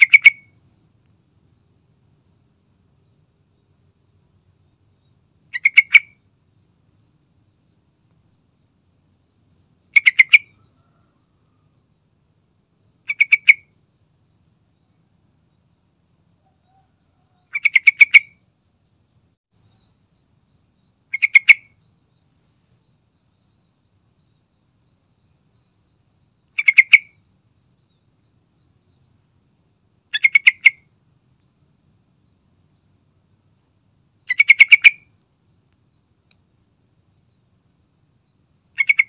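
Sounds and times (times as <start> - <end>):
bulbul calling: 0.0 - 0.9, 4.2 - 11.6, 12.8 - 15.8, 16.4 - 20.0, 20.8 - 29.4, 30.1 - 31.6, 33.6 - 35.6, 38.2 - 39.0.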